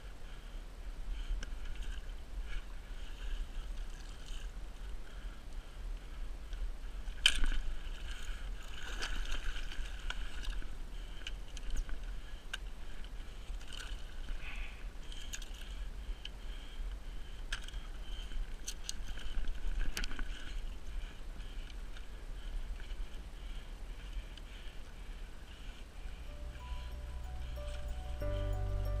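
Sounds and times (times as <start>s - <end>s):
water splashing and sloshing: 7.2s - 10.8s
steady low rumble: 25.8s - 29.0s.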